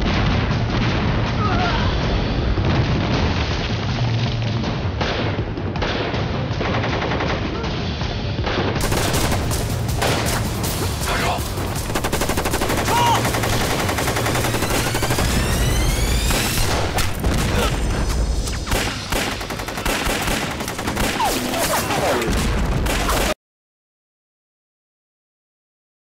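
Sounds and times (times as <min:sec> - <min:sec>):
low rumble of explosions: 0:00.0 - 0:21.2, 0:22.2 - 0:23.3
rapid gunfire: 0:04.8 - 0:17.9, 0:18.6 - 0:23.4
men shouting: 0:12.7 - 0:13.5.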